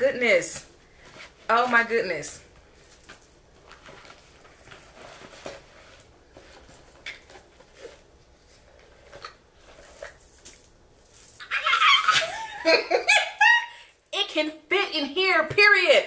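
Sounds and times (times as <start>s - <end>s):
handbag rustling: 2.7s - 11.4s.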